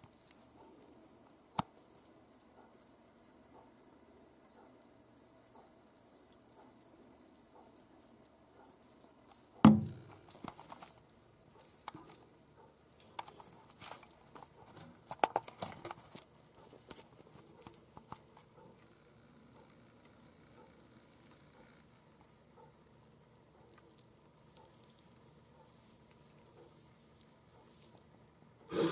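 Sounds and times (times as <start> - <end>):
faint high cricket chirps: 0.1 - 14.0, 16.2 - 28.7
sharp knock: 9.7 - 10.2.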